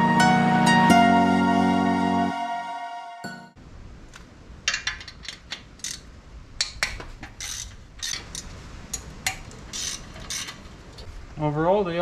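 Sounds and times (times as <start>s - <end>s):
hand ratchet clicking: 4.7s - 10.6s.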